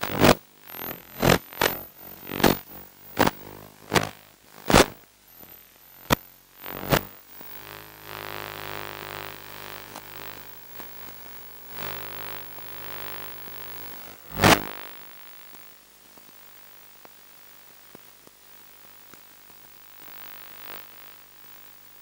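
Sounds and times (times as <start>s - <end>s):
sharp crackles: 0.0s - 5.0s
electrical hum and hiss: 0.0s - 22.0s.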